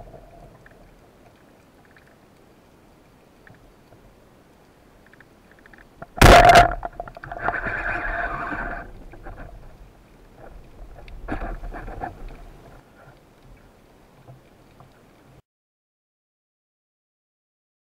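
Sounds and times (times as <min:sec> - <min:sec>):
speargun firing crack: 0:06.2 - 0:07.0.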